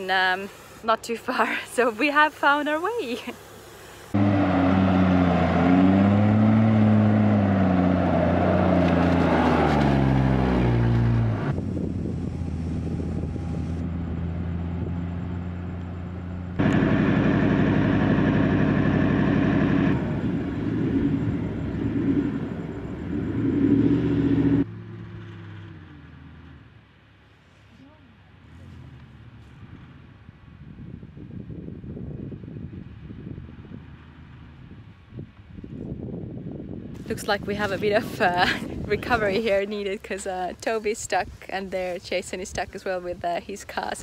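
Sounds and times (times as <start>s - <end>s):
off-road engines revving: 4.1s - 11.6s, 12.3s - 26.7s, 28.3s - 30.2s, 37.1s - 44.0s.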